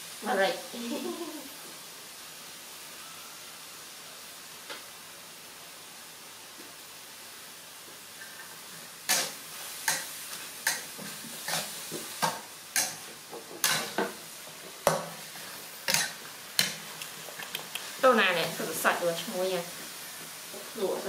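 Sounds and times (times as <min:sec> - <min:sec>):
low steady hiss: 0:00.0 - 0:21.0
metal spatula scraping wok: 0:09.1 - 0:14.1, 0:14.9 - 0:16.9.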